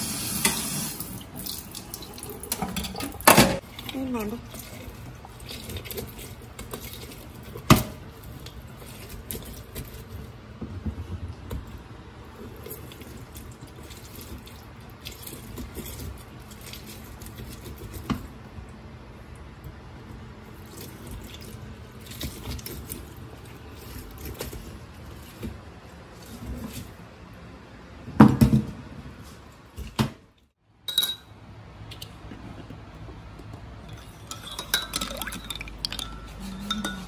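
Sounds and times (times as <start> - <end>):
juice squishing and dripping: 0.9 - 10.2, 11.9 - 27.0.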